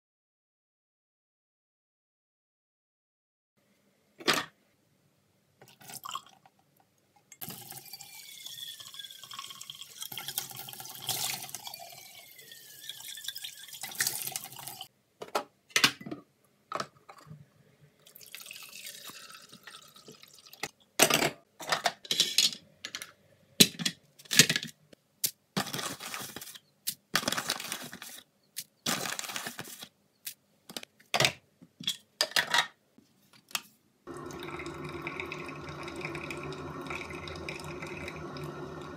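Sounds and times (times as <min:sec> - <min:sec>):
carafe filling with water: 0:07.4 - 0:14.9, 0:18.0 - 0:20.6, 0:34.1 - 0:38.9
liquid pouring into steel sink: 0:07.4 - 0:14.9, 0:34.1 - 0:38.9.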